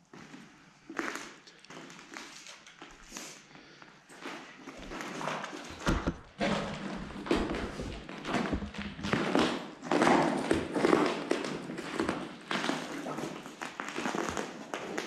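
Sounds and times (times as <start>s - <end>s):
footsteps on a hard floor: 4.2s - 12.8s.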